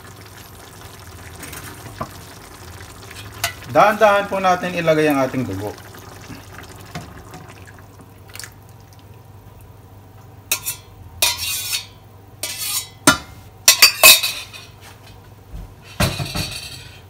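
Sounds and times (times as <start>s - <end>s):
low steady hum: 0.0s - 15.6s
spoon scraping metal pot: 10.5s - 13.0s.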